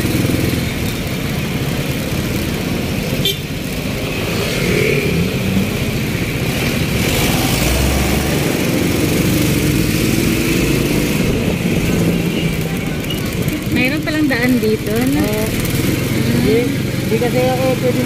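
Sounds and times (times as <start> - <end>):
motorcycle engine running: 0.0 - 18.0
wind rushing over microphone: 4.1 - 12.3.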